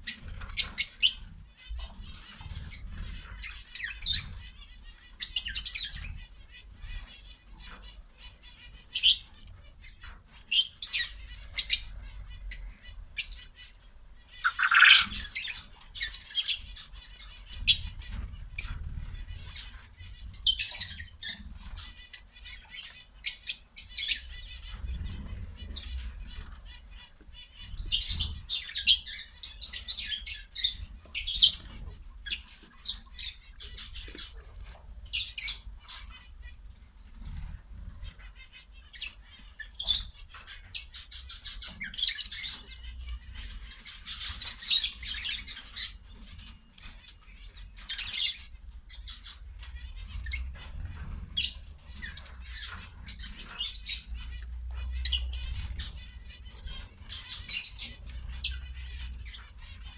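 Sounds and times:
bird chirps: 0.0s - 59.9s
birds pecking and rustling: 0.0s - 59.9s.

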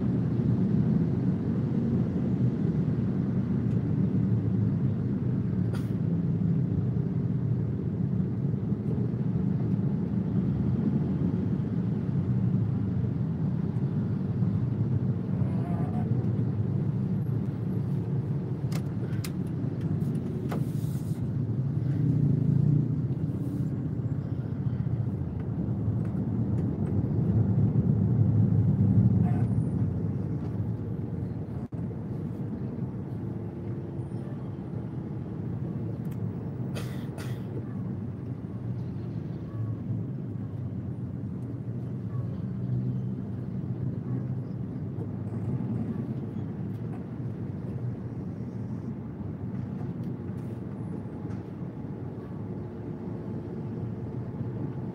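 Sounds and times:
car engine and road rumble: 0.0s - 54.9s
short clicks and hisses: 20.0s - 21.3s.

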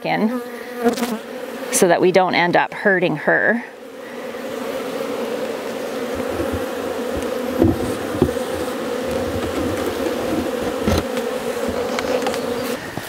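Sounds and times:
bees buzzing: 0.0s - 13.0s
wooden hive boxes knocking: 6.0s - 12.7s.

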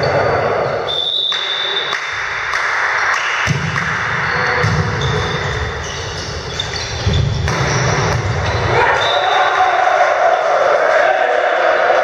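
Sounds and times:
hands slapping volleyball: 2.0s - 4.9s.

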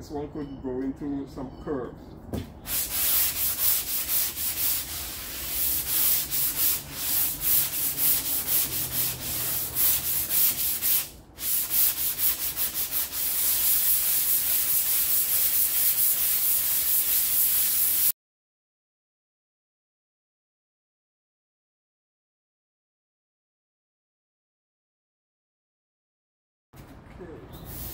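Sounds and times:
sandpaper rasping on filler: 2.7s - 18.2s, 27.6s - 27.9s.

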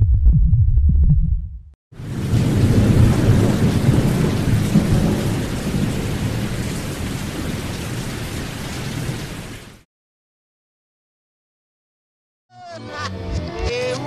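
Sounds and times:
thunder-like rumble: 0.0s - 9.5s
rain-like rush of noise: 2.0s - 9.8s.

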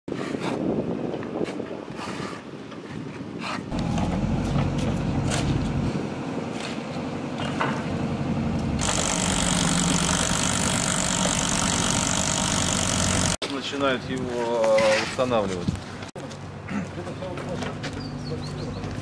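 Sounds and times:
low engine hum: 3.7s - 12.4s
backhoe loader diesel engine: 3.7s - 13.4s.

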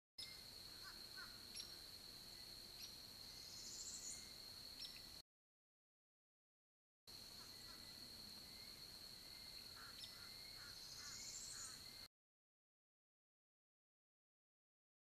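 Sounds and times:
faint bird chirps: 0.2s - 5.2s, 7.2s - 12.1s.

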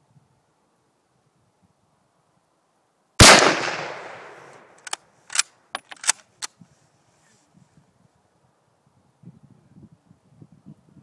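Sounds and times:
rifle shot with echo: 3.2s - 4.8s
rifle bolt clicking: 4.8s - 6.5s.

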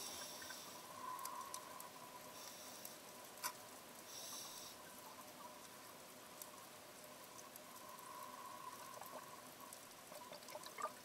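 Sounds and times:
underwater hiss: 0.0s - 1.5s, 2.2s - 3.1s, 4.0s - 4.9s
faint steady hum: 0.0s - 11.0s
fish crunching on reef underwater: 7.4s - 11.0s.

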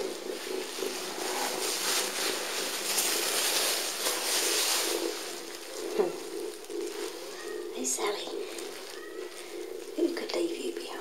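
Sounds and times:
plastic bag crackling: 0.0s - 11.0s.

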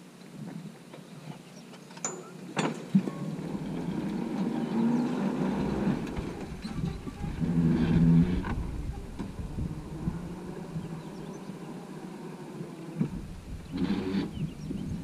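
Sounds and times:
tractor diesel engine running: 3.2s - 15.0s.

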